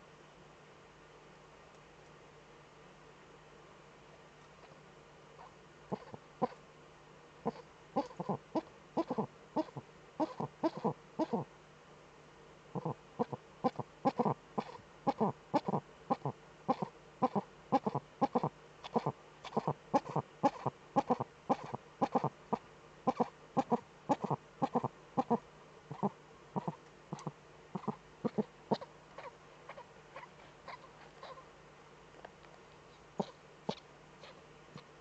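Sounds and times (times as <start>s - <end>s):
owl cackling calls: 5.9s - 6.6s, 7.4s - 11.5s, 12.8s - 31.5s, 33.2s - 34.4s.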